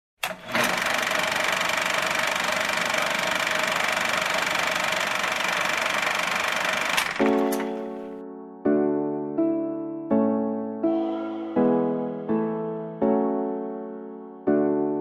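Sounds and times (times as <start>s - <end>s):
mechanical click-and-catch: 0.2s - 0.8s, 6.9s - 7.8s
machine whirring and clattering: 0.2s - 7.8s.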